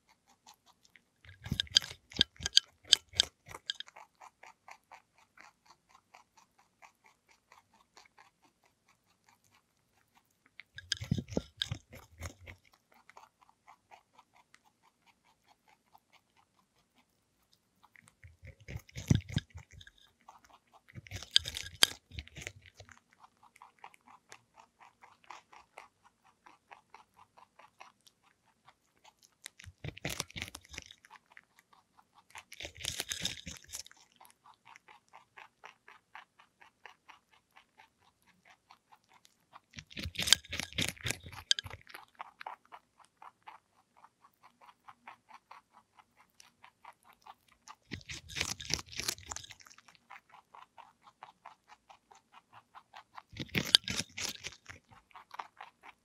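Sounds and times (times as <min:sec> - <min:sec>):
rabbit chewing clicks: 0:00.0 - 0:56.0
wet crunches of cucumber: 0:20.8 - 0:27.9, 0:29.0 - 0:37.9, 0:39.6 - 0:42.8, 0:46.6 - 0:56.0.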